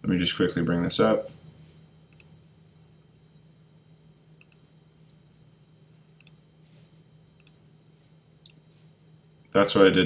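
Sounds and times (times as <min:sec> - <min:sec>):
low steady hum: 0:00.0 - 0:10.0
computer mouse clicks: 0:04.4 - 0:04.6.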